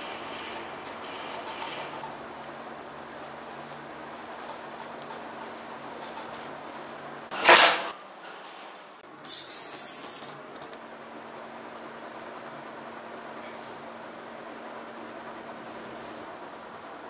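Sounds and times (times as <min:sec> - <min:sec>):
loud brief scraping: 0:07.3 - 0:07.9.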